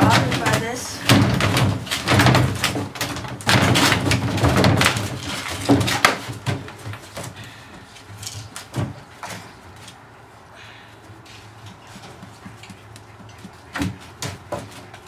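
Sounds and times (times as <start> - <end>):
puppies knocking hollow plastic barrel: 0.0 - 7.8, 13.2 - 15.0.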